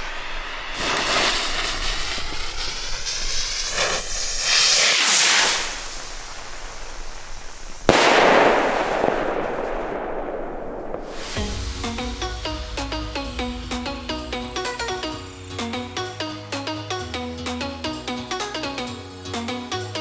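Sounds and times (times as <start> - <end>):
firework fuse hissing: 0.0 - 9.1, 10.3 - 16.2
firework bang: 0.0 - 15.6
rocket whooshing: 0.0 - 16.2.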